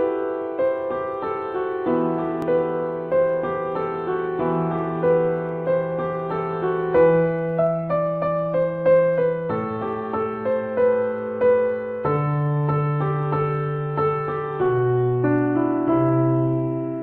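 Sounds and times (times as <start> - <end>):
slow keyboard melody: 0.0 - 17.0.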